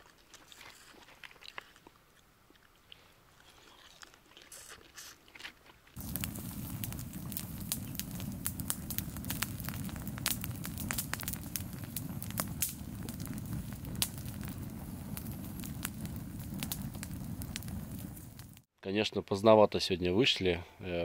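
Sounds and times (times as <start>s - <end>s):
campfire crackling and popping: 5.9s - 18.7s
low rush of flame: 6.0s - 18.7s.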